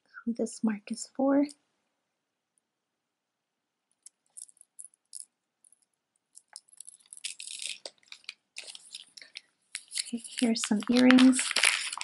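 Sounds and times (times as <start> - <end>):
jewelry clicking and rattling: 4.0 - 11.9.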